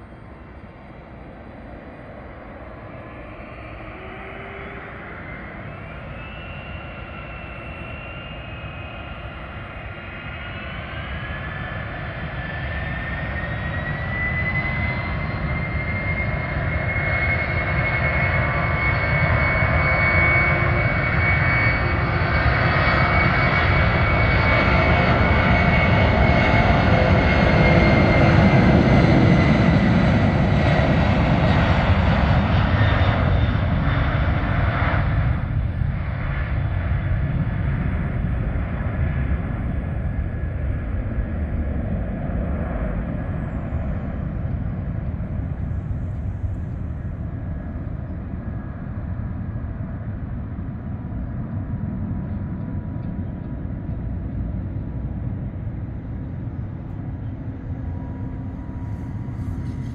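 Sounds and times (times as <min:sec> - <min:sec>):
jet engine whine: 0:00.0 - 0:59.9
deep jet roar: 0:56.4 - 0:59.9.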